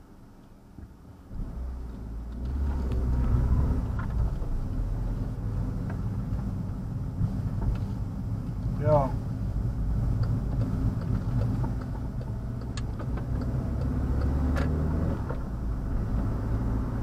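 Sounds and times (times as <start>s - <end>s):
car engine accelerating: 1.3s - 17.0s.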